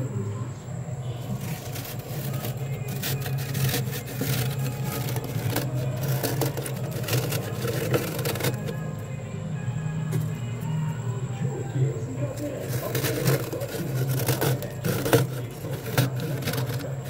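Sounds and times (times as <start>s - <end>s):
low freezer hum: 0.0s - 17.0s
fingers scraping frost: 1.2s - 8.9s, 12.3s - 17.0s.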